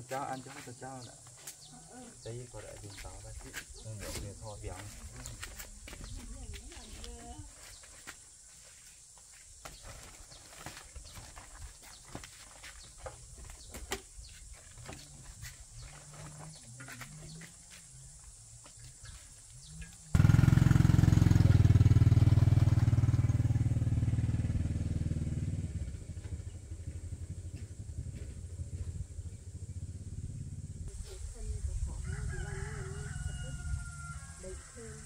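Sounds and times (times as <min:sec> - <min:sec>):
motorcycle engine: 0:19.8 - 0:30.9.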